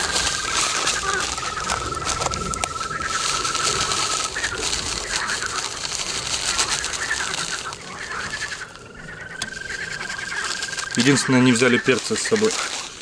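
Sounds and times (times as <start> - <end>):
birds chirping: 0.0 - 13.0
plastic bag rustling: 0.0 - 13.0.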